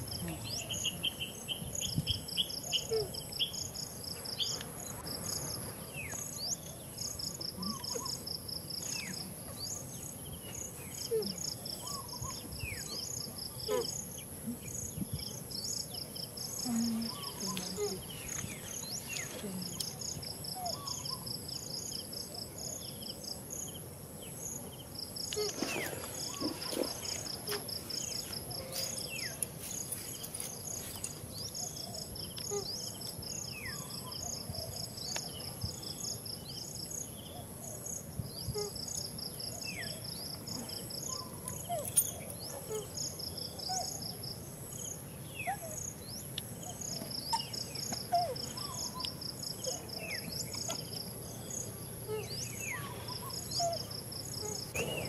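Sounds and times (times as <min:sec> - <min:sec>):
high-pitched insect hum: 0:00.0 - 0:55.0
insects chirping in pulsed trains: 0:00.0 - 0:55.0.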